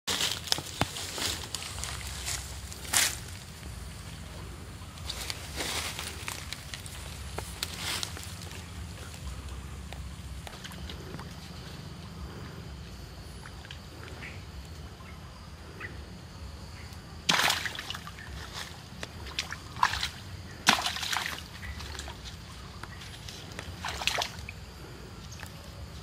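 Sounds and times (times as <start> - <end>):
low steady rumble: 0.9 - 17.3
water splashing in stream: 17.3 - 22.3, 23.5 - 24.6.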